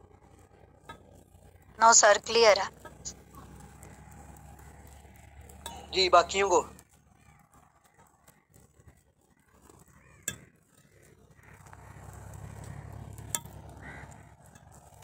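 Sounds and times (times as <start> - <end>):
faint background noise: 0.0 - 15.0
low hum: 0.0 - 15.0.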